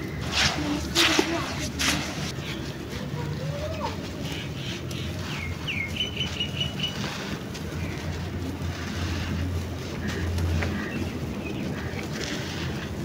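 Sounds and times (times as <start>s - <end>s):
sand crumbling by hand: 0.0s - 2.4s
bird chirping: 4.2s - 7.2s.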